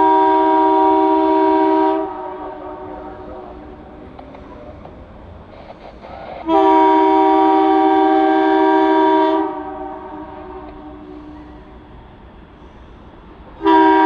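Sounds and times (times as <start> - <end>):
train air horn blast: 0.0 - 4.0, 6.2 - 11.8, 13.6 - 14.0.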